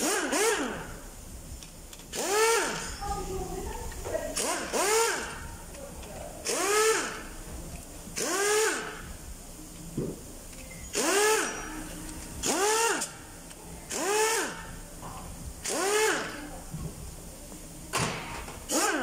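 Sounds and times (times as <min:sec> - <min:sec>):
power tool whining with hiss: 0:00.0 - 0:01.0, 0:02.1 - 0:03.2, 0:04.4 - 0:05.4, 0:06.4 - 0:07.4, 0:08.2 - 0:09.1, 0:10.7 - 0:13.2, 0:13.9 - 0:14.8, 0:15.6 - 0:16.5, 0:17.9 - 0:19.0.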